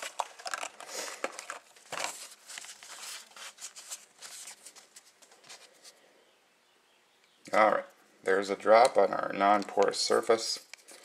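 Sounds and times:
paper tissue rustling: 0.0s - 6.0s.

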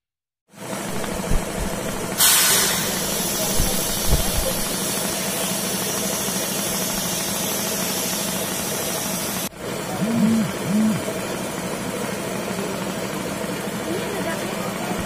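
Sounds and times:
engine idling: 0.6s - 15.0s
constant hiss: 0.9s - 5.1s.

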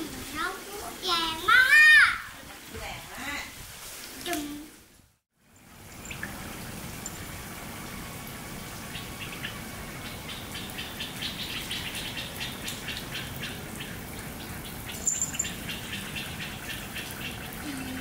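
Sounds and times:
sprinkler spraying water: 5.4s - 18.0s
small birds chirping: 8.9s - 18.0s.

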